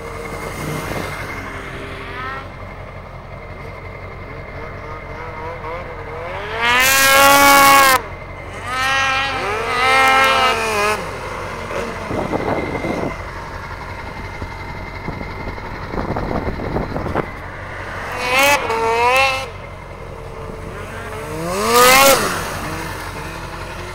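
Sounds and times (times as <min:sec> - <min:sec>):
snowmobile engines revving: 0:00.0 - 0:23.9
steady rushing noise: 0:10.5 - 0:23.9.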